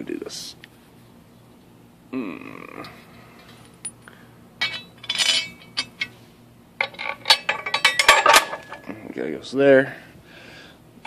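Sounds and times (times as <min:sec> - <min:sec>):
metal bolts clinking: 0:03.4 - 0:06.2, 0:06.8 - 0:09.1
metal clank: 0:03.4 - 0:06.2, 0:06.8 - 0:09.0.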